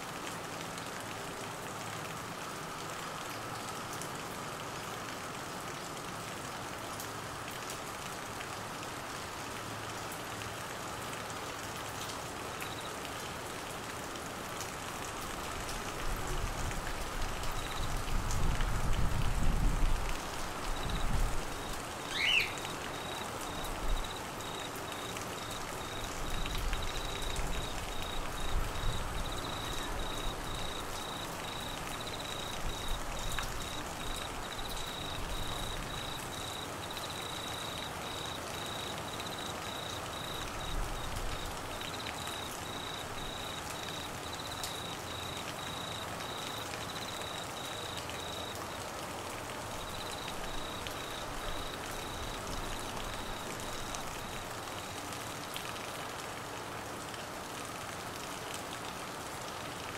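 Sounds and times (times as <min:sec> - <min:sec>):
rain on trees and grass: 0:00.0 - 0:59.9
cricket trilling: 0:17.5 - 0:18.0, 0:20.6 - 0:48.9, 0:49.7 - 0:54.5.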